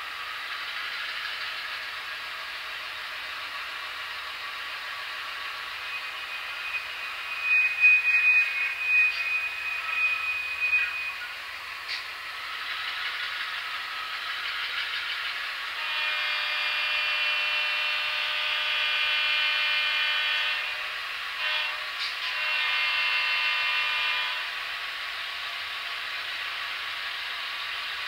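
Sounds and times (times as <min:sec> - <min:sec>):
model diesel engine sound: 0:00.0 - 0:28.0
air horn blast: 0:15.8 - 0:24.5.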